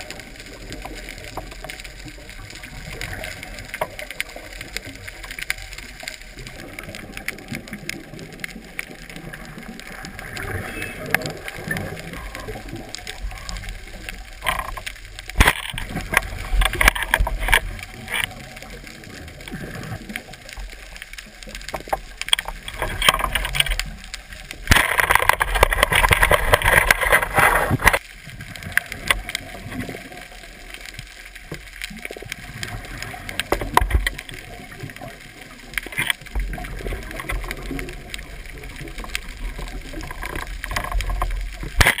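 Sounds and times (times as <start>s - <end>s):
scattered clicks: 0.0s - 28.1s, 28.7s - 42.0s
bubbling exhaled breath: 19.3s - 20.4s.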